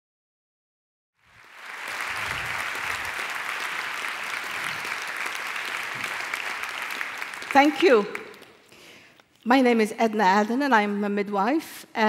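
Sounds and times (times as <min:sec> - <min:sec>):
audience applauding: 0:01.2 - 0:08.7.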